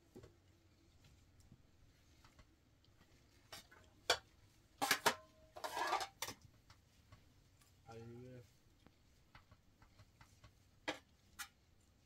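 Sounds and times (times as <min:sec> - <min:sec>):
metal spoon scraping a steel pot: 0:04.8 - 0:06.3
plates clinking: 0:04.8 - 0:06.4.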